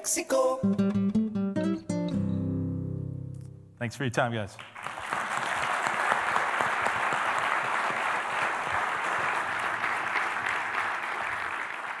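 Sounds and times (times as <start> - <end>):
audience applause: 4.5 - 12.0.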